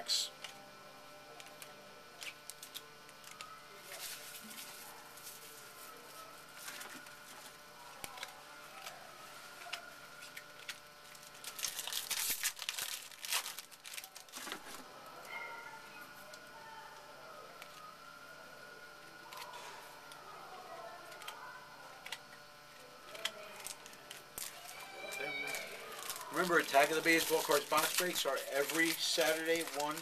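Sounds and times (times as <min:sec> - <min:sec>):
wrappers crinkling and tearing: 0:02.2 - 0:14.9, 0:23.0 - 0:30.0.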